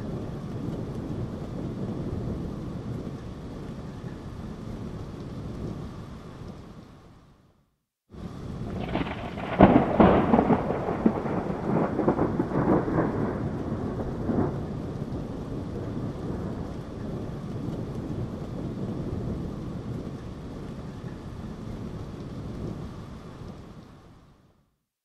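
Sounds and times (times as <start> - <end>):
thunder cracking and rumbling: 0.0 - 6.6, 8.2 - 23.8
steady rain: 0.0 - 24.8.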